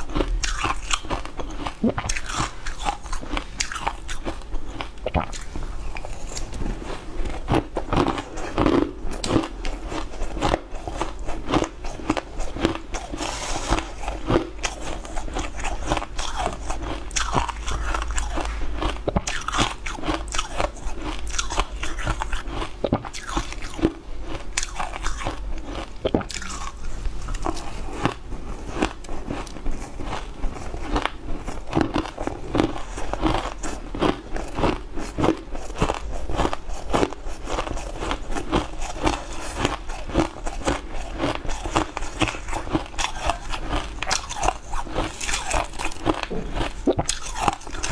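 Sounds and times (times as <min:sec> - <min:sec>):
chewing shaved ice: 0:00.0 - 0:47.9.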